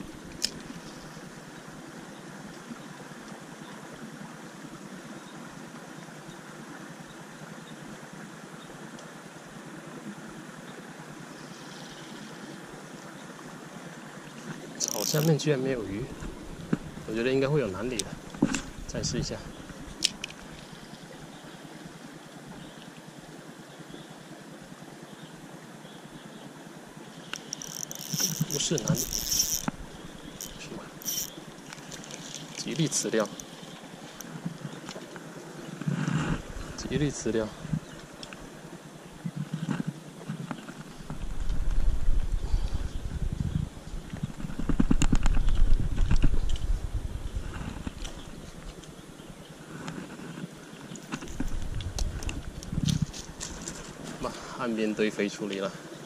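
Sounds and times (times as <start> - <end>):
outdoor background hiss: 0.0 - 56.0
microphone handling noise: 39.2 - 48.4, 51.1 - 53.8.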